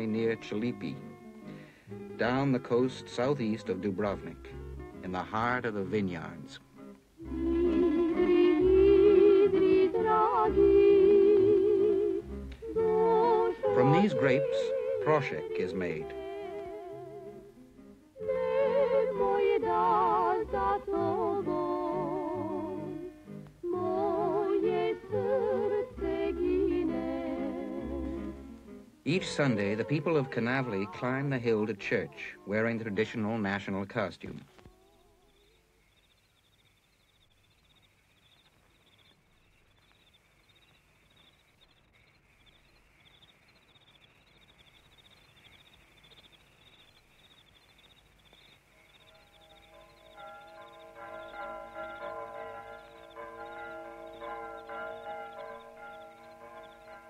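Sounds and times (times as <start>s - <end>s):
vibrato melody with low accompaniment: 0.0s - 33.8s, 49.0s - 57.0s
film soundtrack hiss and hum: 0.0s - 57.0s
insects chirping: 5.4s - 17.6s, 18.2s - 57.0s.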